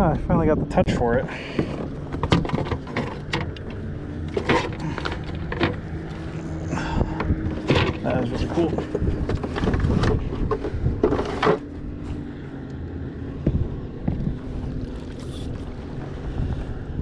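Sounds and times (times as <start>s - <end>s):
wind rumbling on microphone: 0.0s - 17.0s.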